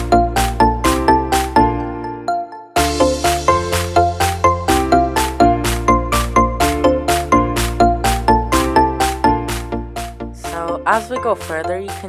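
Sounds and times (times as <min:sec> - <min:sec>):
bell-like notes: 0:00.1 - 0:09.0.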